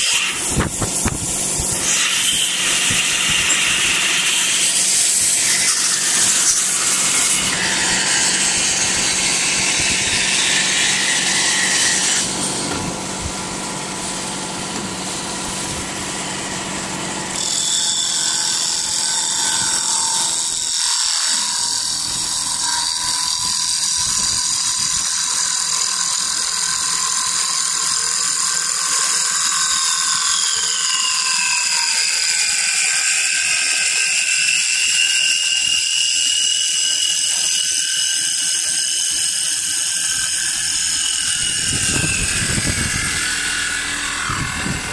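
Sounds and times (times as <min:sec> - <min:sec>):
tool shaving wood: 0:00.0 - 0:44.9
machine motor whine: 0:39.5 - 0:44.9.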